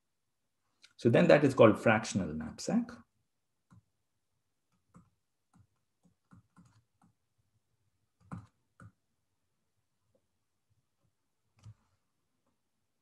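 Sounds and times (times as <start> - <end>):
stylus tapping on a tablet: 4.7 - 7.2, 8.2 - 9.0.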